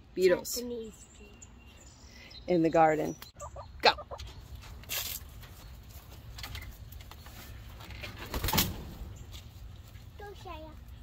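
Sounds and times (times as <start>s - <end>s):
hen flapping wings: 8.0s - 9.0s.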